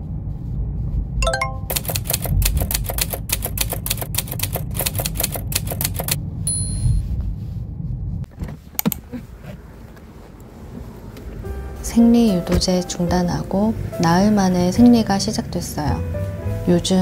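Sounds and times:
typewriter bell ding: 0:01.3 - 0:03.1
typewriter key clacks: 0:01.7 - 0:06.2
low car cabin rumble: 0:07.1 - 0:17.0.

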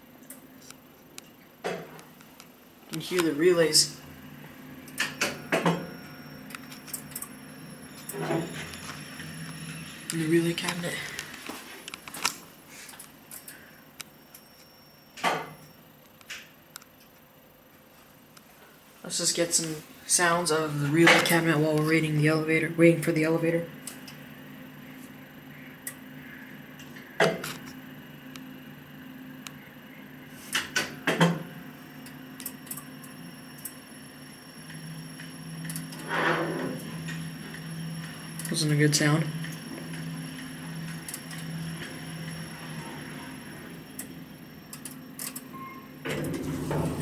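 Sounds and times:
low steady hum: 0:00.0 - 0:47.0
elevator relays clicking: 0:32.0 - 0:33.8, 0:34.7 - 0:36.0, 0:44.7 - 0:47.0.

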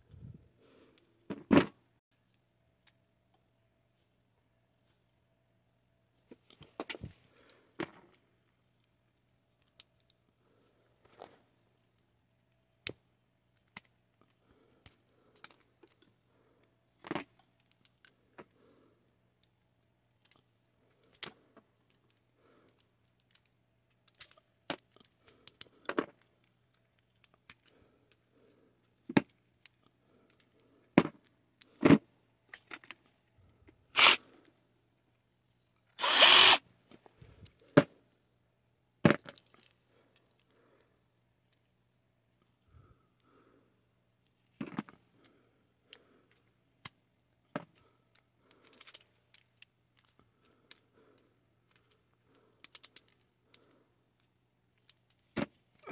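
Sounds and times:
small metal parts clicking: 0:19.3 - 0:28.2, 0:48.1 - 0:50.9, 0:51.6 - 0:55.2.

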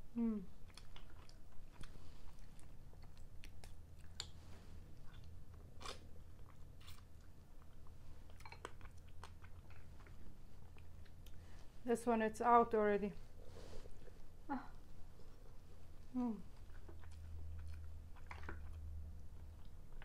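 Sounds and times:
chewing: 0:00.6 - 0:11.6, 0:15.1 - 0:20.0.

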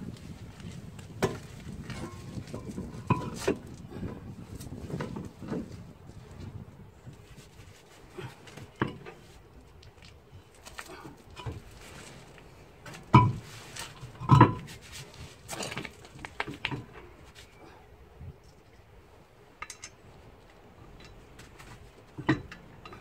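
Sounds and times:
steel wheel clinking and clanking: 0:01.8 - 0:03.6, 0:12.8 - 0:14.8, 0:19.6 - 0:20.0, 0:20.8 - 0:23.0.

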